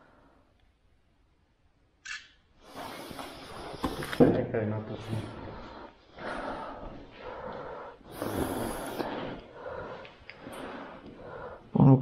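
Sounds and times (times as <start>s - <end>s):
person breathing: 0.0s - 0.6s, 2.6s - 4.3s, 4.9s - 12.0s.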